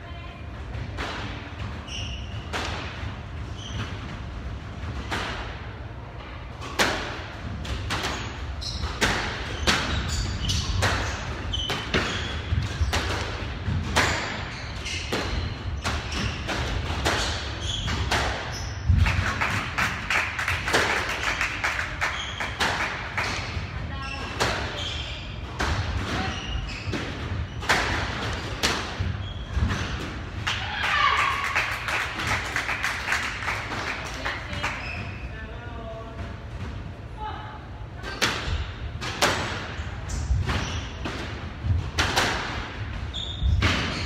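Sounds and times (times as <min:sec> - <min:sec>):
squash ball hits: 0:06.6 - 0:24.8, 0:25.5 - 0:30.8, 0:38.0 - 0:44.0
shoes squeaking on wooden floor: 0:26.2 - 0:27.8.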